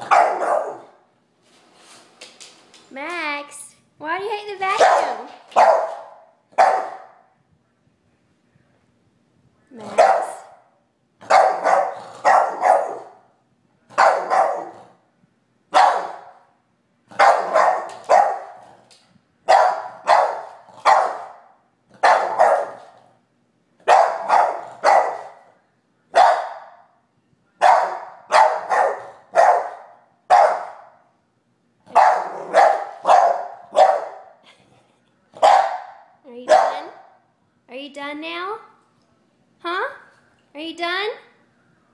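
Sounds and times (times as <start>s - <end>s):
dog barking sharply: 0.0s - 1.0s, 4.8s - 7.2s, 11.2s - 13.2s, 14.0s - 14.8s, 15.8s - 16.4s, 17.2s - 18.6s, 19.5s - 21.4s, 22.0s - 22.9s, 23.9s - 25.4s, 26.2s - 26.8s, 27.6s - 30.9s, 31.9s - 34.3s, 35.4s - 37.1s.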